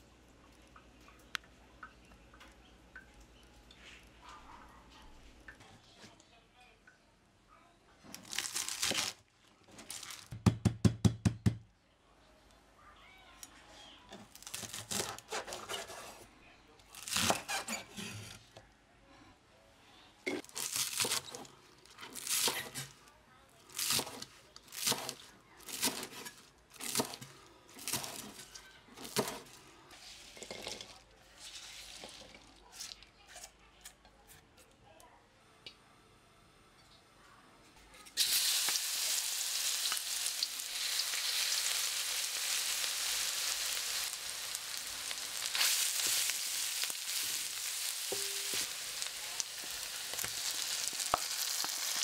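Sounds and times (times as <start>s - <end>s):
pieces rustling: 8.1s - 10.3s.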